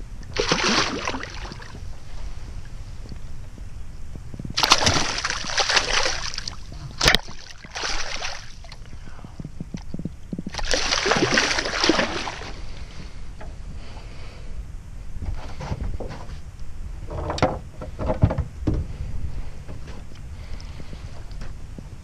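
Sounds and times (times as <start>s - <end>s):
fish splashing water: 0.3s - 1.8s, 4.6s - 8.8s, 10.5s - 12.6s.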